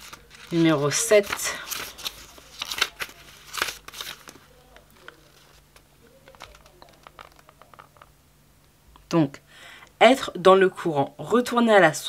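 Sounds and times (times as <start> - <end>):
book pages rustling: 0.0 - 8.1.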